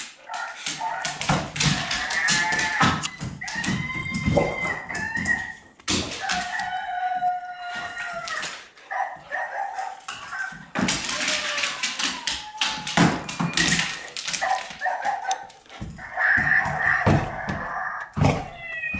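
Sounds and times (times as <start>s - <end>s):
rooster crow: 1.6s - 8.6s.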